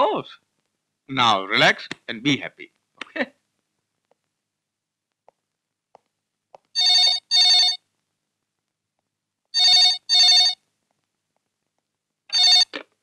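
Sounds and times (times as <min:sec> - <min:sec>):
telephone ringing: 0:06.8 - 0:07.8, 0:09.6 - 0:10.6, 0:12.3 - 0:12.8.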